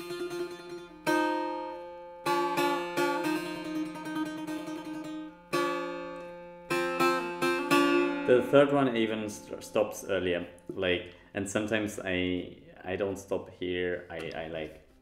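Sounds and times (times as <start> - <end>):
setar plucked solo: 0.0 - 11.1, 14.0 - 14.8.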